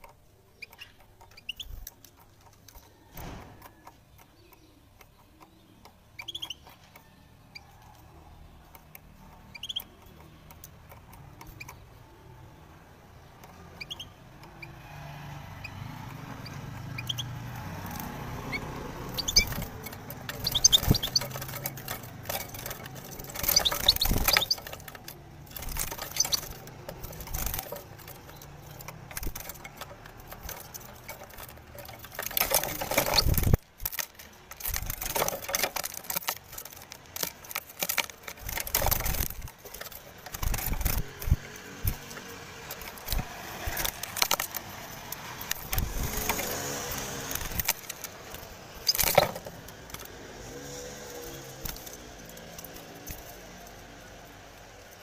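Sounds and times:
wire bird cage rattling: 0:15.6 - 0:55.0
bird fluttering against bars: 0:16.1 - 0:55.0.

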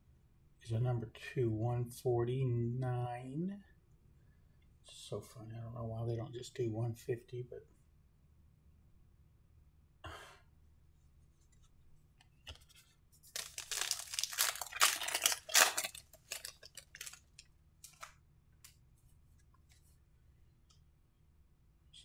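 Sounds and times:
cards rustling: 0:12.4 - 0:20.0
foil wrapper tearing and crinkling: 0:13.3 - 0:18.1.

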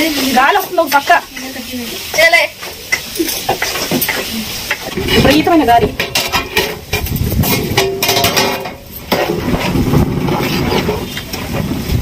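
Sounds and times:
rice clinking against metal pot: 0:00.2 - 0:09.8.

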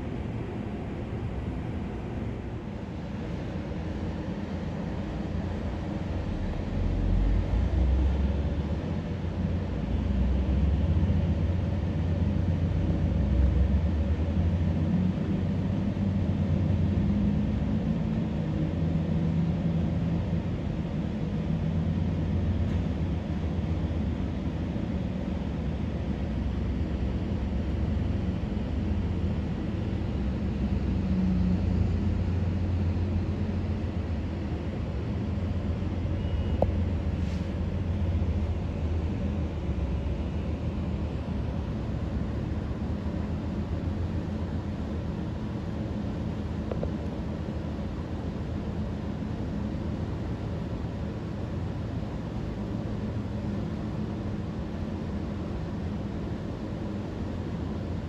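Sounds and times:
diesel locomotives rumbling: 0:00.0 - 0:20.2, 0:26.3 - 0:45.0.

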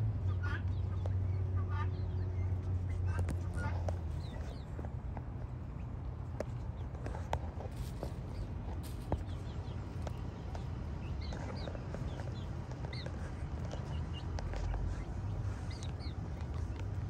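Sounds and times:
birds chirping: 0:00.2 - 0:17.0.

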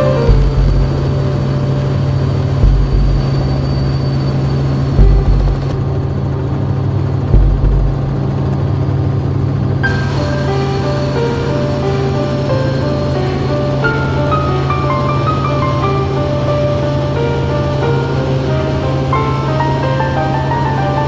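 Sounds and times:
helicopter engine and rotor drone: 0:00.0 - 0:21.0
deep thump: 0:00.3 - 0:01.1, 0:02.6 - 0:03.4, 0:05.0 - 0:05.8, 0:07.3 - 0:08.2.

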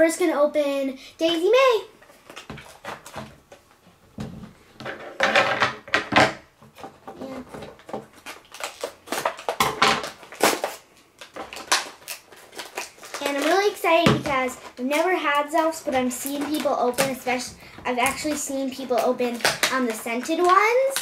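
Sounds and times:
packaging crinkling and rustling: 0:02.0 - 0:03.8, 0:06.7 - 0:21.0.

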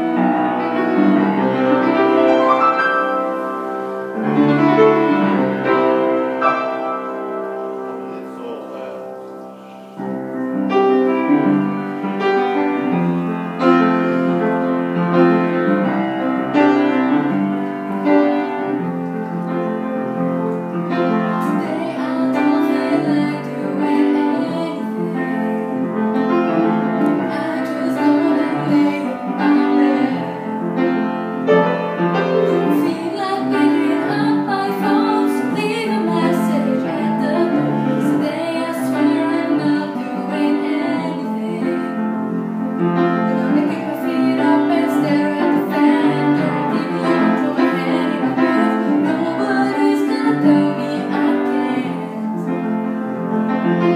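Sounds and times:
upright piano: 0:00.0 - 0:53.9
girl singing: 0:21.3 - 0:25.9, 0:27.0 - 0:30.5, 0:32.5 - 0:42.0, 0:43.3 - 0:52.6.

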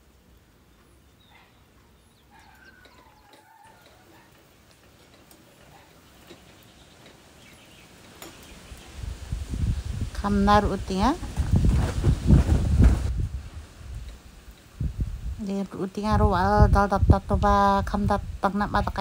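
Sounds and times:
faint bird calls: 0:00.7 - 0:04.5.

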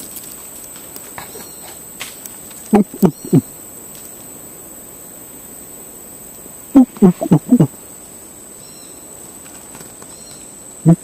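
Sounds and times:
high-pitched insect buzz: 0:00.0 - 0:11.0
monkey low grunting calls: 0:02.7 - 0:03.6, 0:06.7 - 0:07.9.

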